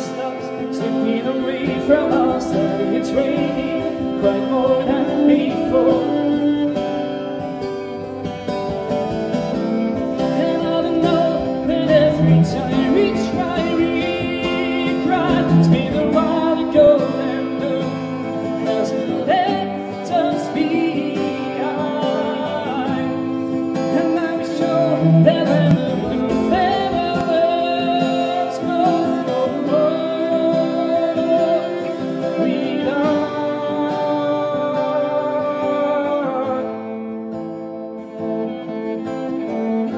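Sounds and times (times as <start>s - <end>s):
person singing wordlessly: 0.0s - 7.9s, 10.2s - 37.0s
acoustic guitar strumming: 0.0s - 39.9s
bowed cello: 7.4s - 34.6s.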